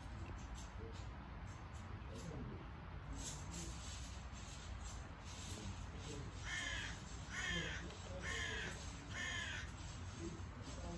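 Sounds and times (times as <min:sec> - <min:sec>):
bird harsh calls: 0:06.3 - 0:10.0.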